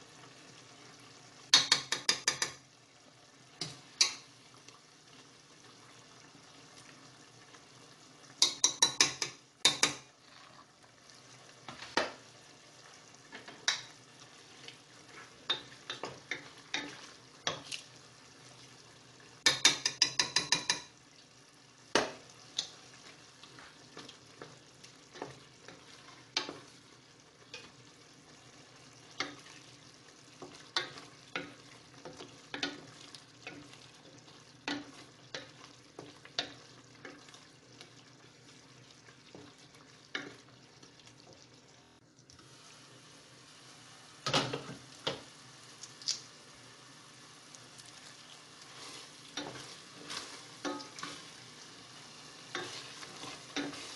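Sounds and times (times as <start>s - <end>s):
knocks against a pan: 1.5s - 2.6s, 8.4s - 10.1s, 19.4s - 20.9s
sharp metallic taps on a pan: 1.5s - 2.7s, 3.6s - 4.3s, 8.4s - 10.1s, 13.3s - 14.0s, 19.4s - 21.0s, 21.9s - 22.7s, 50.6s - 51.0s
spoons scraping in a saucepan: 48.6s - 51.4s, 52.4s - 53.9s.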